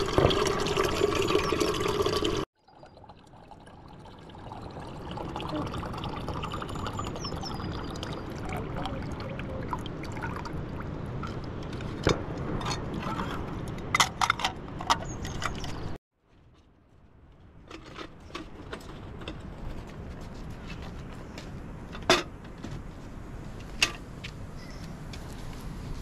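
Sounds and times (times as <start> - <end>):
tap water filling kettle: 0.0 - 2.4.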